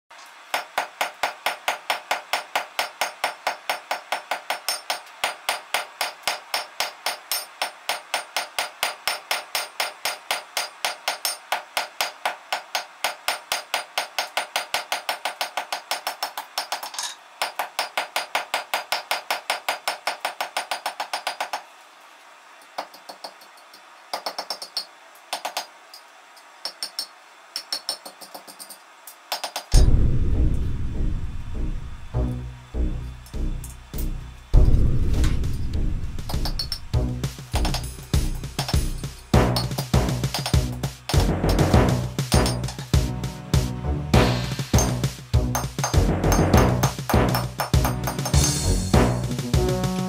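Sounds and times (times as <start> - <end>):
hammer striking steel on anvil: 0.5 - 21.6, 36.3 - 43.1, 44.2 - 48.9.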